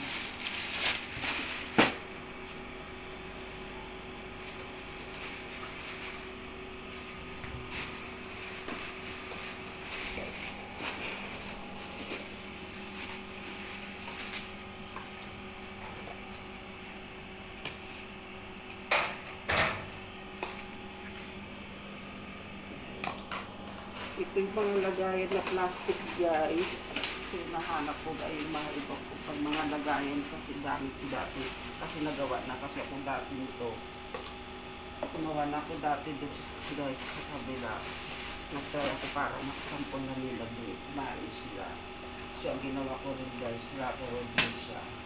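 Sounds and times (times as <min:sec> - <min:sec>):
bags rustling: 0:00.0 - 0:02.8, 0:04.4 - 0:14.9, 0:23.5 - 0:32.6
appliance hum: 0:00.0 - 0:45.0.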